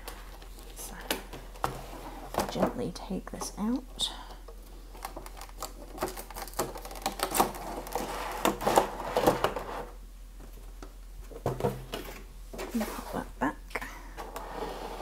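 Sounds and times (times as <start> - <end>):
plastic blister crinkling: 4.4 - 9.6
packaging scraping: 4.7 - 9.9.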